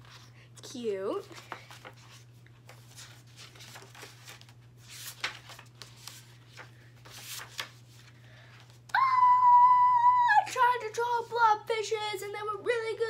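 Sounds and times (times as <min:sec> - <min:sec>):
paper pages rustling: 0:00.0 - 0:00.4, 0:01.1 - 0:08.9.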